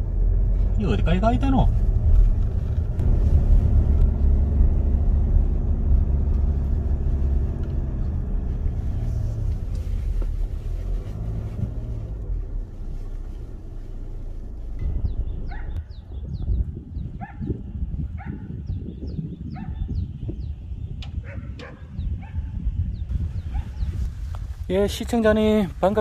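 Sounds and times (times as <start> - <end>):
car engine pulling uphill: 0.0 - 18.5
low road rumble: 0.0 - 26.0.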